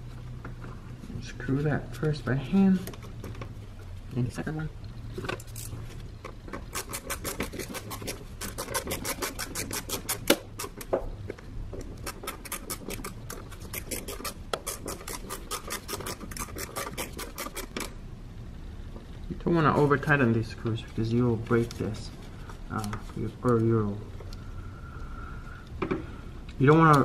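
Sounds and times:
ratchet clicking rapidly: 6.6s - 10.8s, 12.0s - 18.0s.

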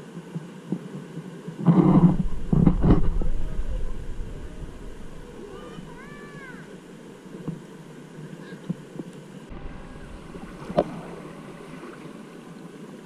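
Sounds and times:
river water lapping and gurgling: 1.0s - 13.0s
sharp knocks: 1.8s - 6.3s.

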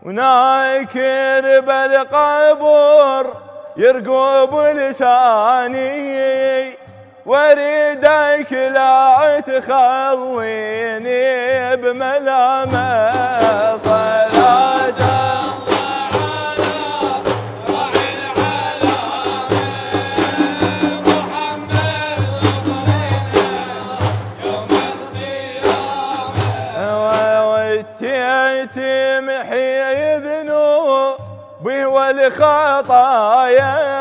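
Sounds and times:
men singing devotional refrain: 0.0s - 34.0s
frame drums beating: 12.5s - 28.3s.

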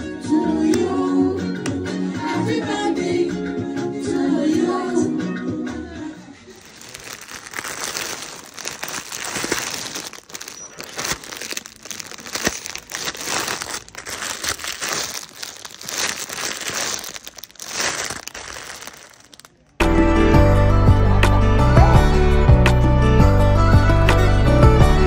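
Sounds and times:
plastic packaging crinkling: 6.5s - 19.8s.

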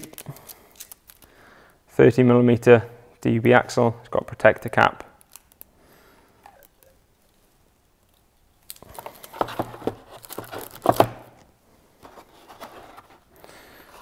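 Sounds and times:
cardboard box rustling: 8.9s - 11.2s, 12.0s - 13.3s.

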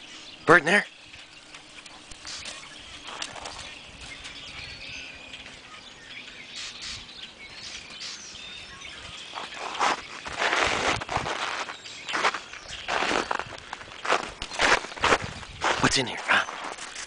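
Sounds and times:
small birds chirping faintly: 0.0s - 17.0s
footsteps crunching on snow: 1.4s - 4.6s, 8.6s - 17.0s.

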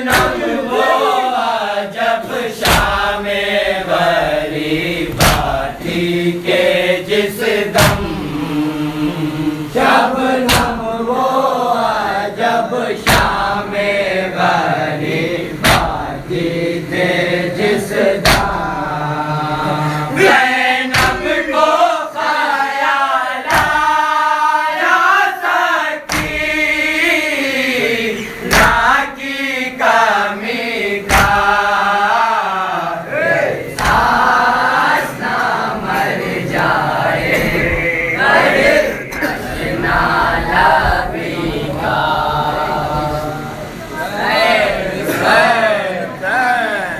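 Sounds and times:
lead reciter's voice: 0.0s - 46.9s
men chanting in chorus: 0.0s - 46.9s
chest-beating slaps: 0.1s - 0.5s, 2.6s - 3.1s, 5.1s - 5.8s, 7.7s - 8.2s, 10.4s - 10.8s, 15.6s - 16.1s, 18.2s - 18.7s, 20.9s - 21.4s, 23.5s - 23.9s, 26.1s - 26.5s, 28.4s - 29.0s, 31.1s - 31.6s, 33.7s - 34.4s.

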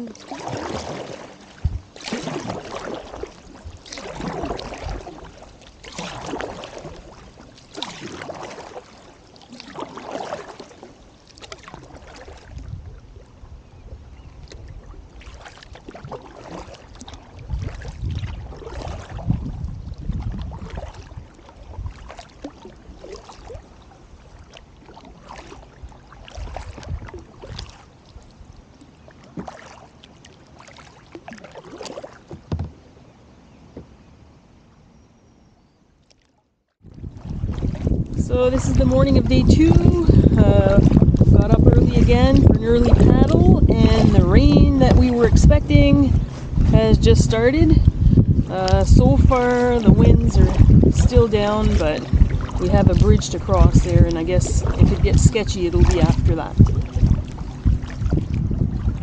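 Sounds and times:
paddle splashing in water: 0.0s - 34.8s, 35.9s - 59.0s
low rumble: 36.8s - 59.0s.

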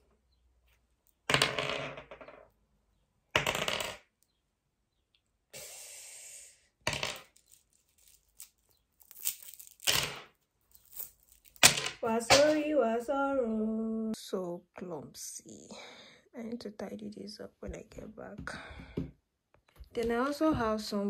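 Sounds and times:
small hard objects clattering: 6.9s - 12.6s.

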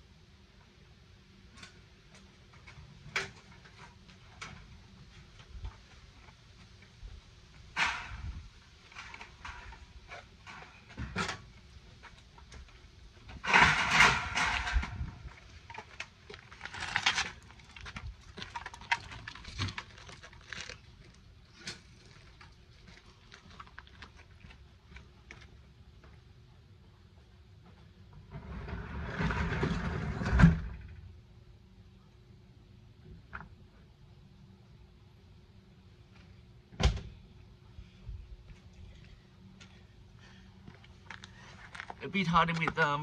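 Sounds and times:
bicycle knocks and rattles: 7.7s - 19.9s.

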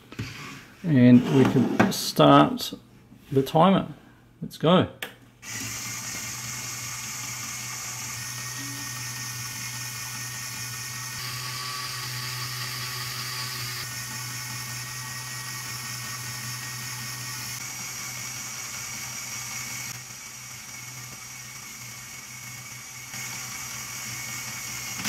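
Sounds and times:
electric motor whirring with gears: 5.4s - 25.0s.

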